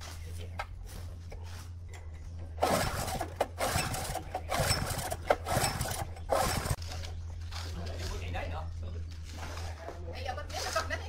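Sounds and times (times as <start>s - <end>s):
recoil starter cord whirring: 2.5s - 7.2s.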